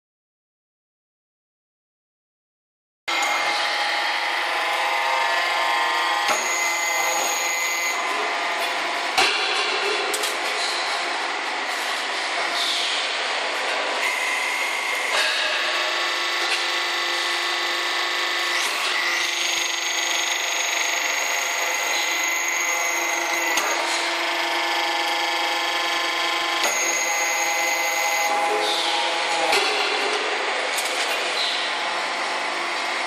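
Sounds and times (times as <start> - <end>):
machine whining: 3.1 - 9.2, 14.0 - 33.0.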